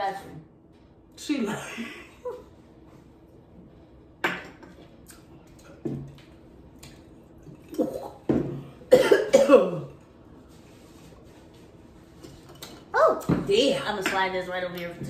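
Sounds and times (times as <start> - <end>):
woman coughing: 8.9 - 9.9.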